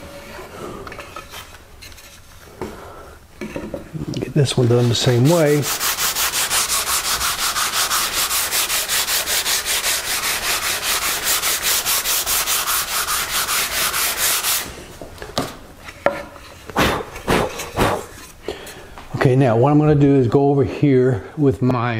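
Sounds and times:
sandpaper rubbing on wood: 4.6s - 14.8s.

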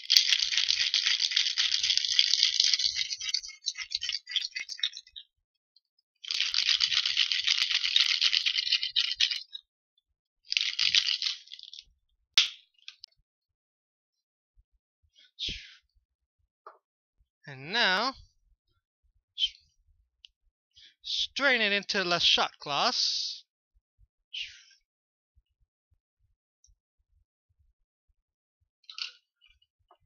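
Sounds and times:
ice rattling in cocktail shaker: 0.0s - 5.2s, 6.2s - 9.6s, 10.5s - 11.9s.

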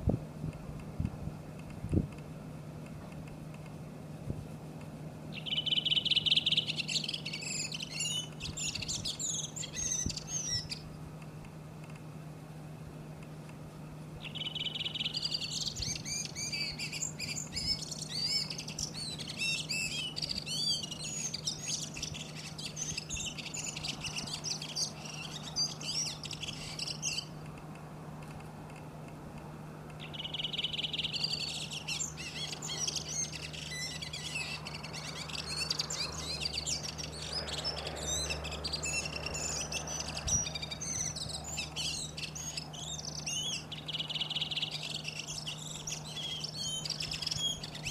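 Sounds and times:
faint steady low hum: 0.0s - 47.9s
bird singing twittering chatter: 5.3s - 11.0s, 14.2s - 27.6s, 30.0s - 47.9s.

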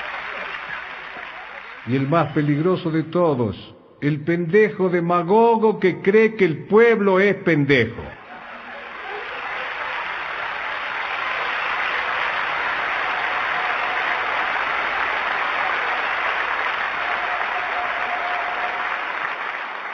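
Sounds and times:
audience applauding: 0.0s - 2.7s, 8.2s - 19.9s.

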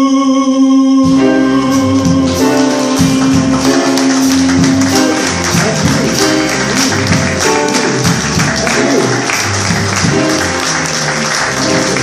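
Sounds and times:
piano: 0.0s - 12.0s
upright double bass: 0.9s - 12.0s
cymbals beat: 1.1s - 10.7s.

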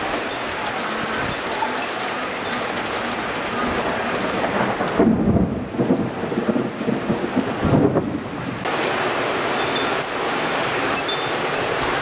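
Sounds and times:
rain falling: 0.0s - 12.0s
rolling thunder: 3.6s - 8.7s.

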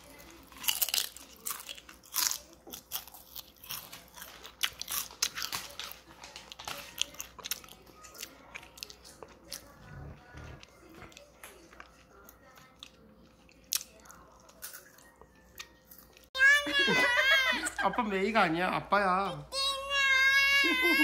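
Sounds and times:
toddler chewing crunchy food: 0.0s - 16.4s.

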